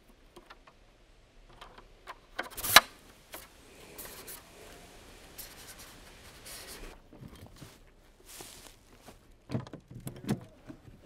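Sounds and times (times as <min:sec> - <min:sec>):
loud sharp snap: 0:02.5 - 0:03.5
soft rubbing and rustling: 0:02.5 - 0:09.4.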